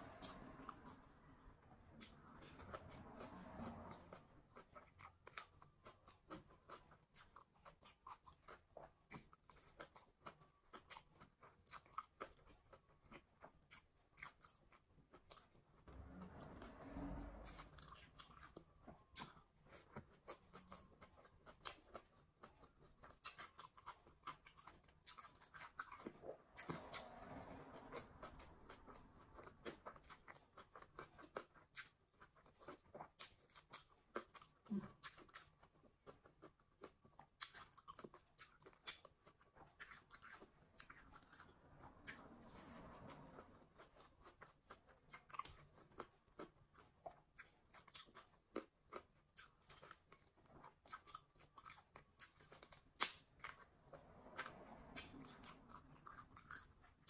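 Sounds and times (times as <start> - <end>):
chewing with wet mouth clicks: 17.5 - 57.0.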